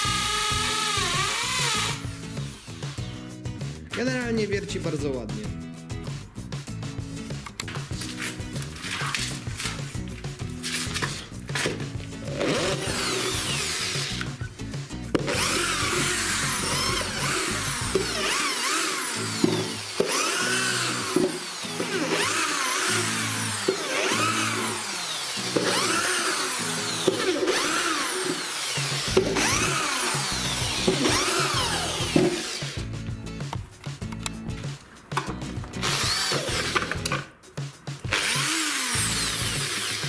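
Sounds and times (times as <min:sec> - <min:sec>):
hammer drill boring into wood: 0:00.0 - 0:03.1, 0:10.6 - 0:14.4, 0:15.2 - 0:32.9, 0:35.8 - 0:37.2, 0:38.1 - 0:40.0
background music: 0:00.0 - 0:40.0.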